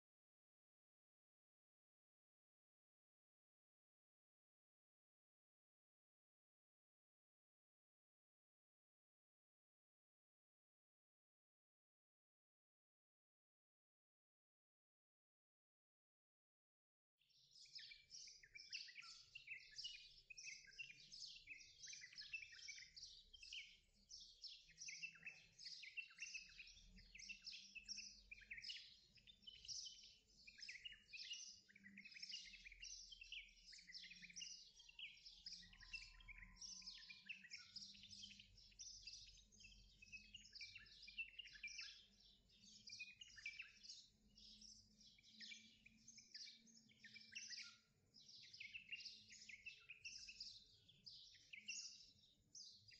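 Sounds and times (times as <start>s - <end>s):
small birds chirping: 17.2s - 52.9s.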